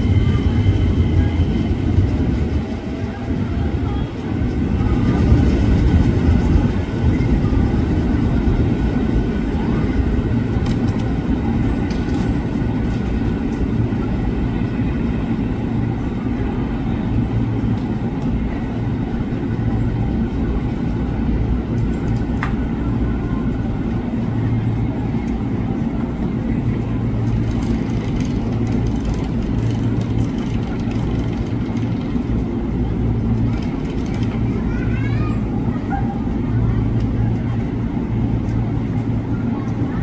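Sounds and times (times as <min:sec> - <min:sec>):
train rumbling on tracks: 0:00.0 - 0:40.0
rail clicks: 0:09.4 - 0:13.8, 0:21.6 - 0:40.0.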